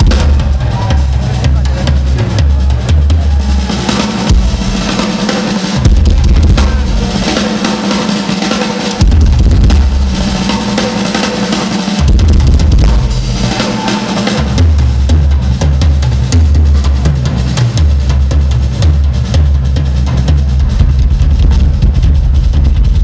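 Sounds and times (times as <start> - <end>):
bass drum runs: 0.0 - 7.7, 8.9 - 11.4, 12.0 - 23.0
cymbals: 0.0 - 23.0
rock drum solo: 0.0 - 23.0.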